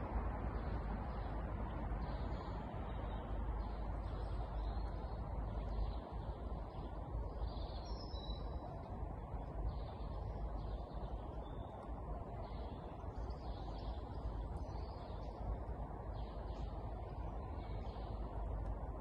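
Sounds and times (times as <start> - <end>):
low background rumble: 0.0 - 19.0
small birds chirping: 0.5 - 18.9.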